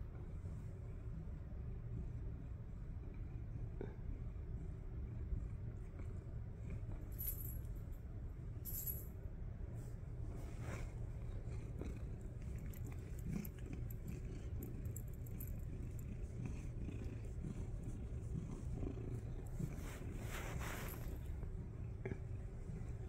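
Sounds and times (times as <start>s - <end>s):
cat purring: 10.4s - 23.0s.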